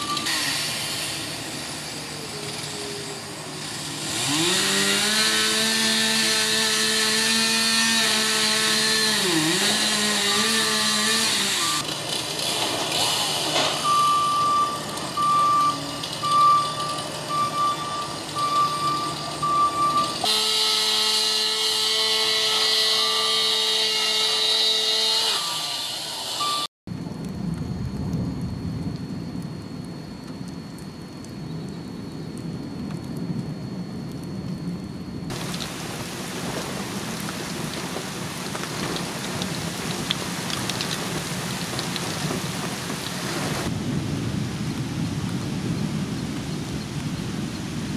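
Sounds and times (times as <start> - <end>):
truck reversing beeper: 0.0 - 1.3, 11.4 - 11.8, 13.6 - 24.4, 25.3 - 26.7
truck engine: 0.0 - 26.7
low outdoor rumble: 26.9 - 47.9
steady rain falling: 26.9 - 47.9.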